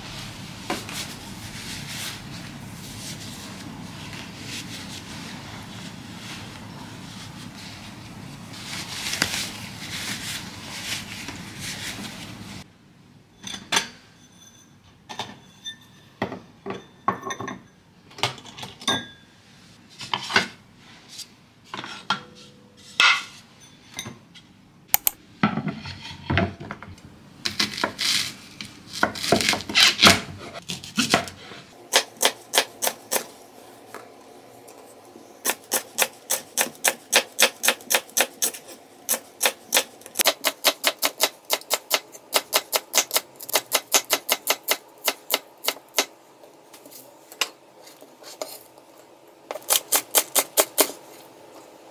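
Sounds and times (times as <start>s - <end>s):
rustling: 0.1s - 12.6s
dishes and utensils clinking: 13.4s - 19.3s, 21.8s - 24.4s.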